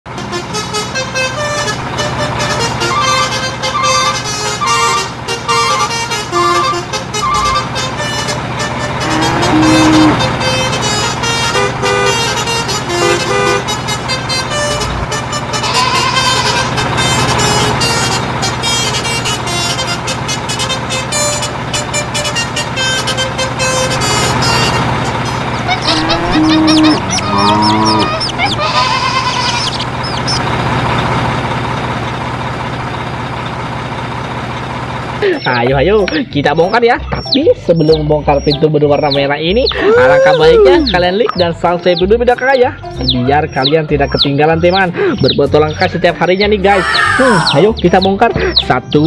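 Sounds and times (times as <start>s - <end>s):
truck engine running: 0.0s - 49.0s
cheerful background music: 0.1s - 27.3s, 35.2s - 49.0s
truck horn toots: 0.1s - 37.2s.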